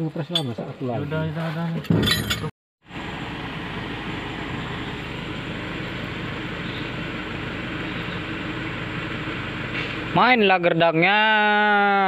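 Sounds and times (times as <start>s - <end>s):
engine running steadily: 2.8s - 10.3s.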